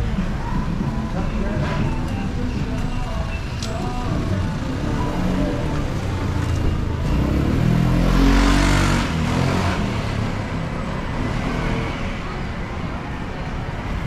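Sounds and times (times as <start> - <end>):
street noise: 0.0 - 14.0
vehicle driving past: 5.0 - 12.2.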